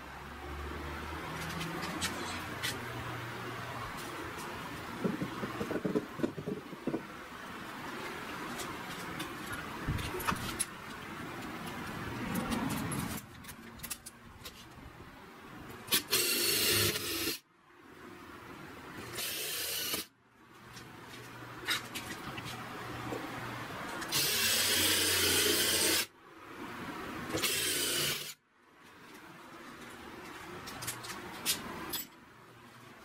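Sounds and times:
knocks and clicks: 0:05.0 - 0:07.2
power drill boring into wood: 0:15.9 - 0:17.4, 0:24.1 - 0:26.1, 0:27.4 - 0:28.3.

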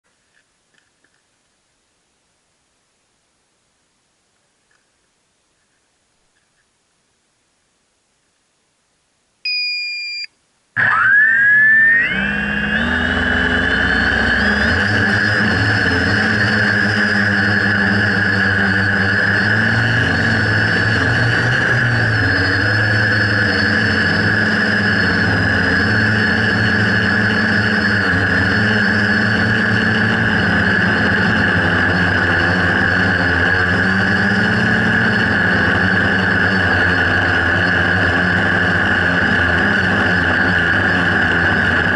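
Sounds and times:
short beep: 0:09.4 - 0:10.4
quadcopter motors whining: 0:10.8 - 0:41.9.

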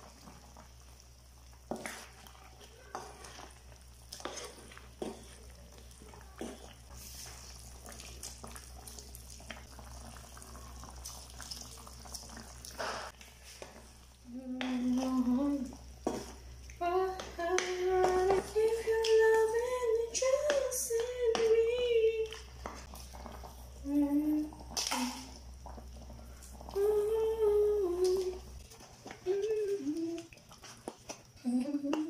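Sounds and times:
wooden spatula stirring in a pan: 0:00.0 - 0:32.0.

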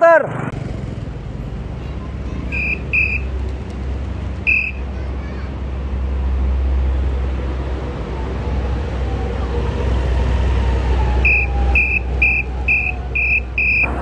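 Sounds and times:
motorbike engines running: 0:00.0 - 0:14.0
street traffic rumble: 0:00.0 - 0:14.0
short high electronic beeps: 0:02.6 - 0:03.3, 0:04.5 - 0:04.8, 0:11.3 - 0:13.9.

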